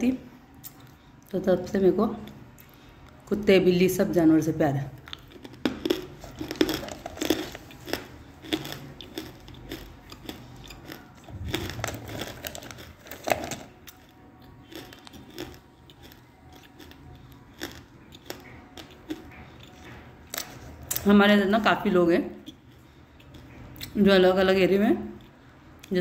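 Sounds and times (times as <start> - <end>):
woman chewing crunchy clay: 5.0 - 21.1, 22.3 - 24.0.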